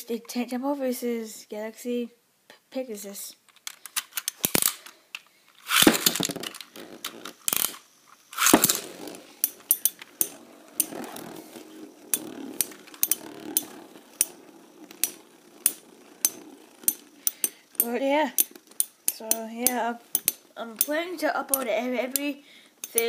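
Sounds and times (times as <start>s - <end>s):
ripcord launch ripping: 5.6s - 17.5s
spinning tops whirring: 5.6s - 23.0s
sharp clicks of tops clashing: 15.0s - 21.0s.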